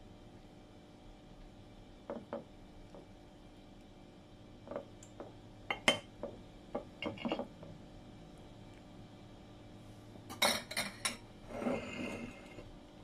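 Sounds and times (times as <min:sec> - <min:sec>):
cutlery clinking on ceramic plate: 0:10.3 - 0:11.2.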